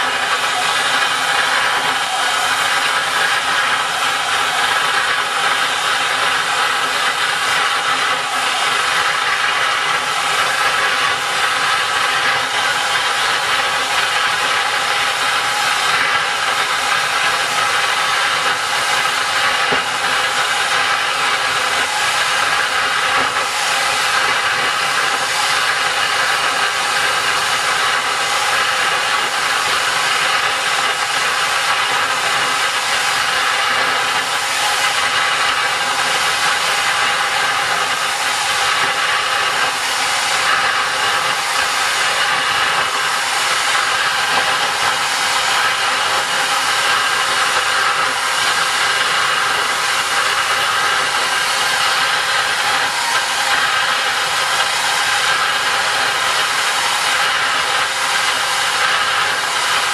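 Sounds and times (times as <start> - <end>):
jet engine rushing hiss: 0.0 - 59.9.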